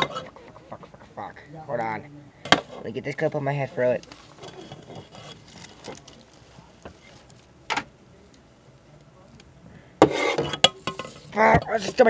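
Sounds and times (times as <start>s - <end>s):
faint clicks and rustles: 2.4s - 12.0s
plastic cup and toy handled on desk: 10.0s - 12.0s.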